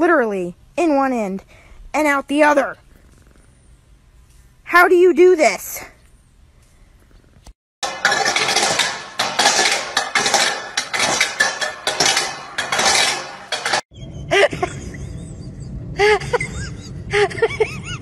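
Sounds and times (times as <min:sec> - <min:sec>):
metal dog bowl scraping on brick: 0:07.8 - 0:13.8.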